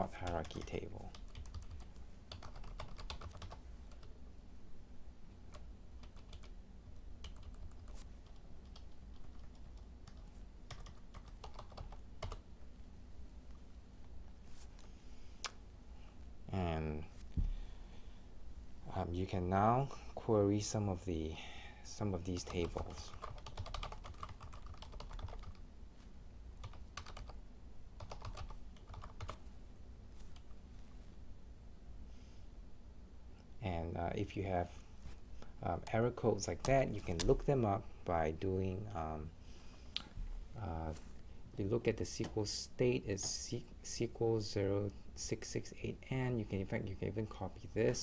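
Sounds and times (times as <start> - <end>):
low steady hum: 0.0 - 48.0
computer keyboard typing: 0.2 - 4.1, 5.5 - 6.6, 7.2 - 12.4, 22.4 - 25.6, 26.6 - 27.4, 28.0 - 29.4.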